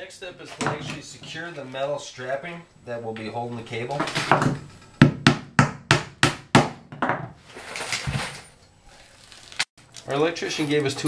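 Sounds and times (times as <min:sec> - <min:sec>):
quiet scraping: 0:00.2 - 0:02.5.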